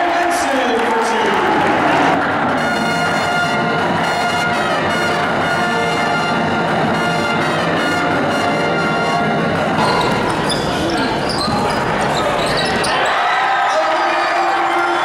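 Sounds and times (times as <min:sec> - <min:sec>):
pep band playing brass chords: 0:01.4 - 0:12.9.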